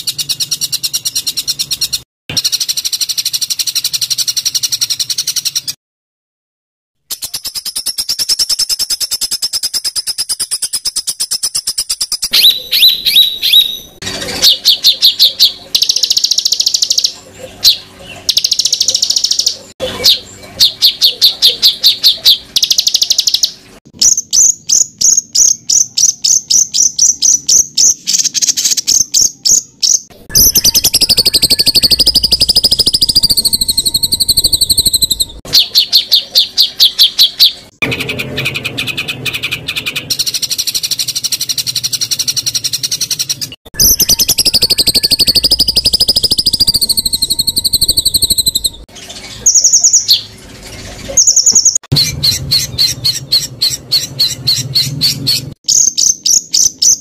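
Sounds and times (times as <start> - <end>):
high warbling whistled birdsong: 0.0 - 5.8, 7.1 - 57.0.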